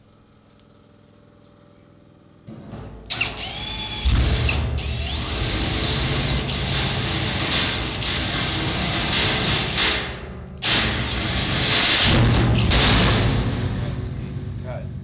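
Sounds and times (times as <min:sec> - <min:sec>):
drill boring into steel: 0:03.1 - 0:09.8.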